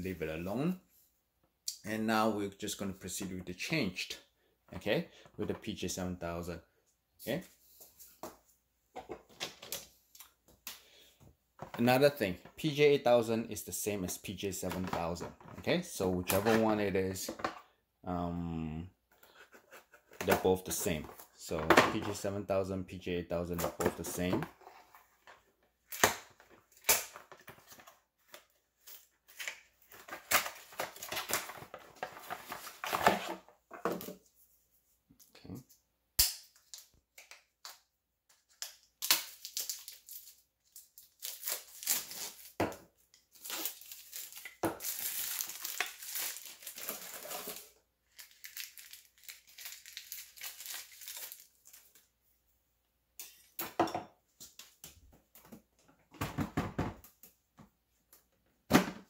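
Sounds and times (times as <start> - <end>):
packaging crinkling and tearing: 38.5 - 42.6, 43.3 - 52.0.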